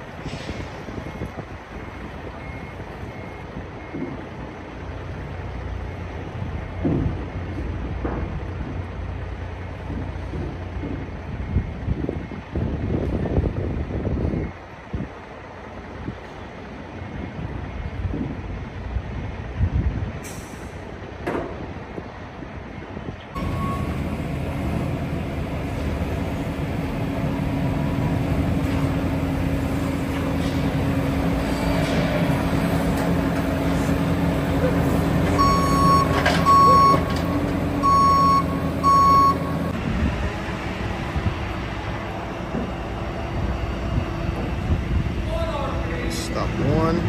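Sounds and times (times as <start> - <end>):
diesel trucks idling: 0.0 - 13.0, 13.6 - 47.0
short beep: 23.4 - 24.0, 35.4 - 37.1, 37.8 - 39.6
excavator engine running: 23.4 - 47.0.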